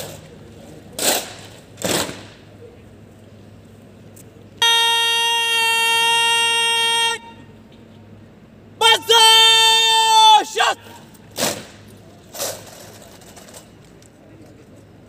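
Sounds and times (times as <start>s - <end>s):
person shouting a command: 4.9s - 7.4s, 8.8s - 11.1s.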